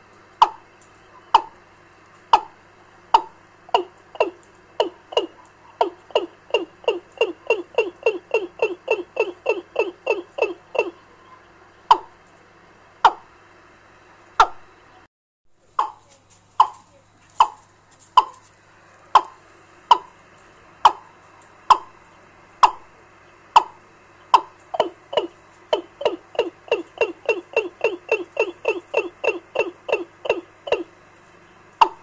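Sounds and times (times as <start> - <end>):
recorded bird call through loudspeaker: 8.6 - 12.1.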